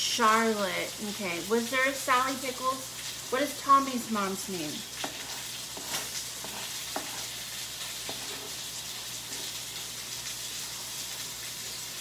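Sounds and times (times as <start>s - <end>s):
knife chopping on wooden board: 5.0s - 8.6s.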